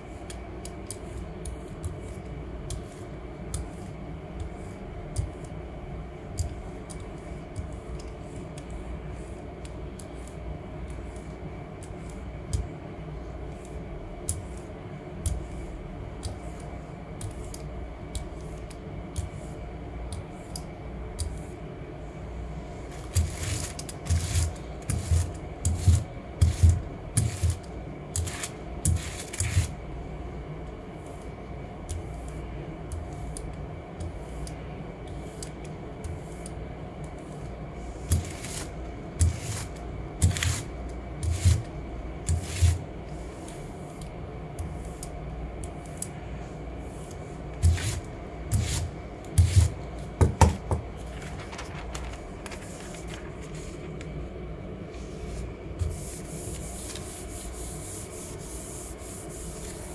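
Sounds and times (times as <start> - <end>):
brayer rolling over paper: 21.2 - 29.8, 30.8 - 45.0, 45.8 - 54.1, 54.8 - 59.9.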